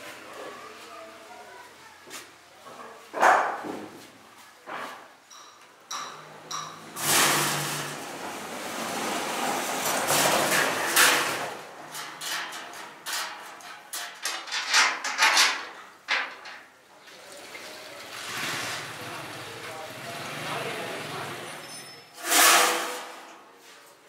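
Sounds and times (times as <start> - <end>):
metal drum clattering: 6.1 - 16.6.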